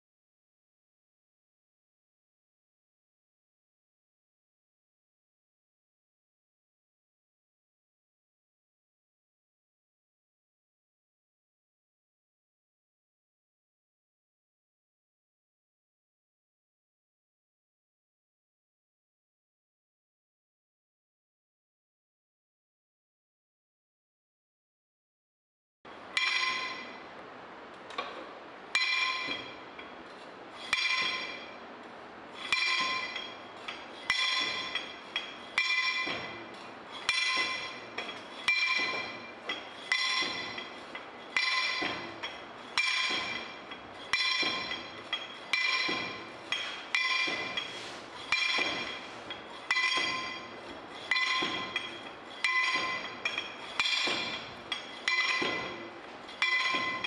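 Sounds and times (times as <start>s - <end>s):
rammer clinking in metal tube: 28.8s - 57.0s.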